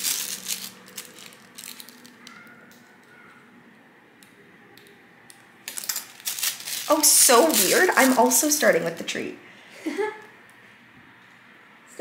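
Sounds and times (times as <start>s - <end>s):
rustling of plastic supplies: 0.0s - 3.1s, 5.6s - 9.2s.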